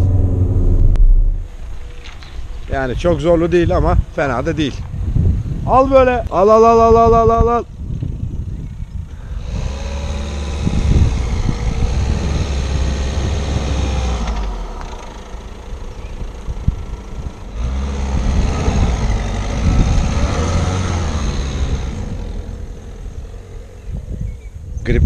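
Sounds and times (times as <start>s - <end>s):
diesel engine revving hard: 9.3s - 24.2s.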